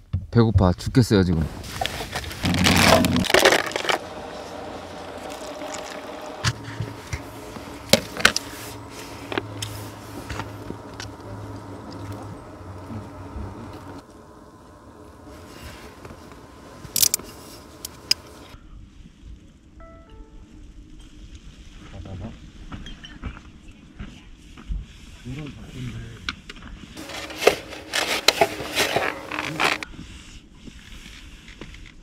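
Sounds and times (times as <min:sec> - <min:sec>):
steady low hum: 0:01.1 - 0:22.5, 0:26.9 - 0:30.1
soup stirred in paper cup: 0:02.4 - 0:10.9
utensils clicking and scraping: 0:27.0 - 0:29.9.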